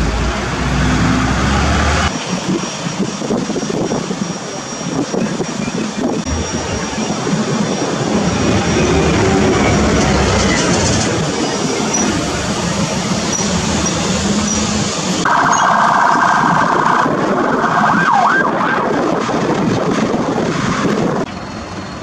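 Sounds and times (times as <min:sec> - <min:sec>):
vehicle noise: 0:00.0 - 0:22.0
fire engine siren wailing: 0:15.2 - 0:19.8.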